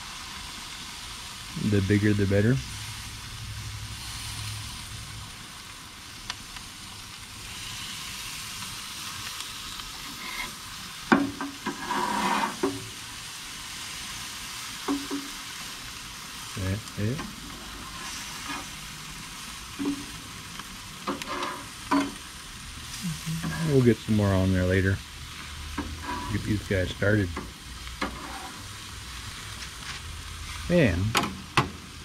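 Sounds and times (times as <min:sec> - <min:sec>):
food sizzling on a grill: 0:00.0 - 0:32.0.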